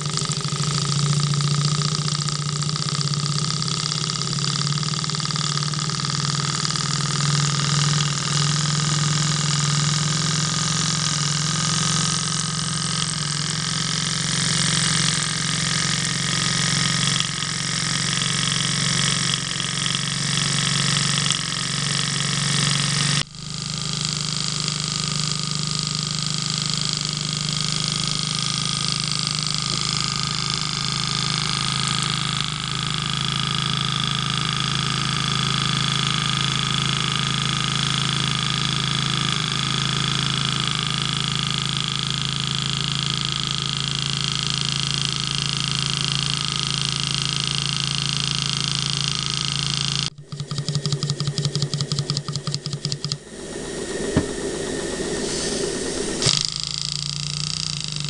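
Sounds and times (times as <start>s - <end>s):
model steam engine running: 0.0s - 58.0s
steam hissing: 53.3s - 57.6s.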